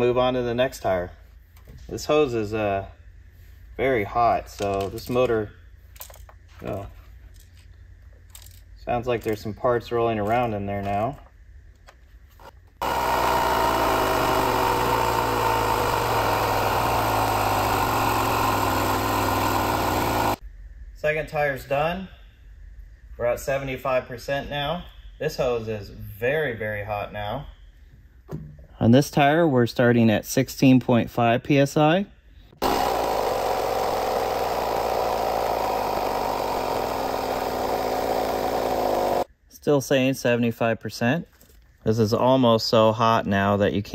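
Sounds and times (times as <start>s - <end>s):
portable air compressor running: 12.8s - 20.4s, 32.6s - 39.3s.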